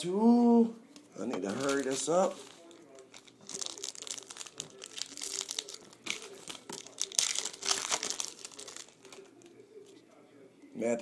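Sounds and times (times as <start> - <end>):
foil wrapper crinkling: 1.5 - 9.6.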